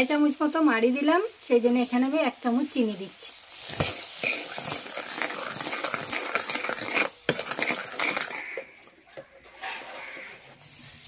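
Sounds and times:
spoon scraping metal pot: 3.6s - 11.0s.

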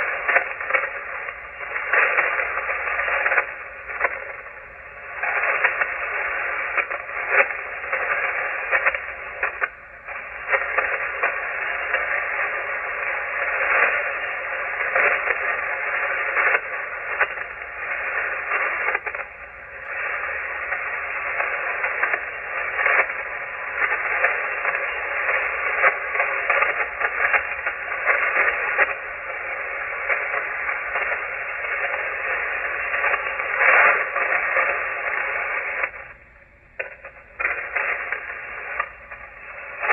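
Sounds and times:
crackling static crashes: 0.0s - 39.9s
radio band noise hiss: 0.0s - 39.9s.

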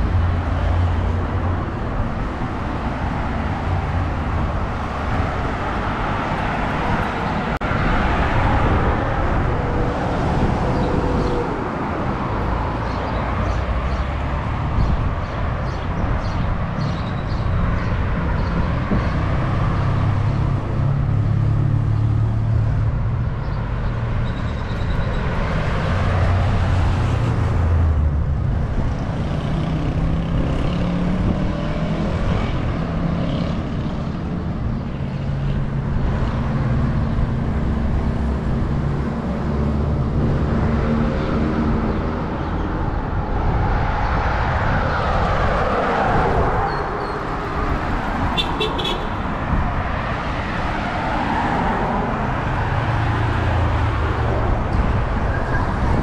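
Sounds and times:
cars and trucks passing: 0.0s - 56.0s.

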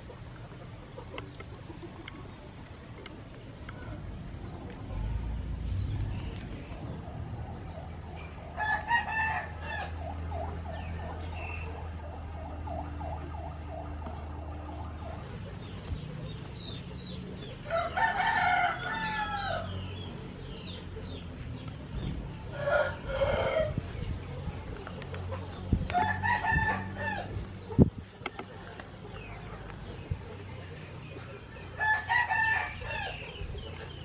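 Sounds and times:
rooster crowing: 8.6s - 10.0s, 17.6s - 19.8s, 22.5s - 23.8s, 25.9s - 27.3s, 31.8s - 33.2s.

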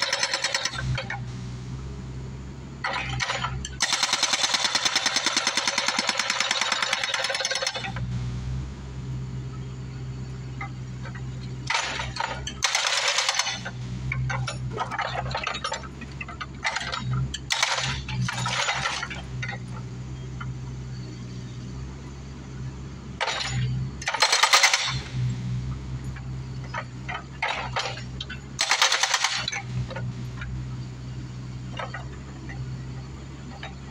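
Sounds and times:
hydraulic hammer pounding concrete: 0.0s - 1.2s, 2.9s - 8.0s, 11.7s - 15.7s, 16.7s - 19.1s, 23.2s - 25.1s, 28.6s - 29.7s
excavator engine running: 0.0s - 33.9s.

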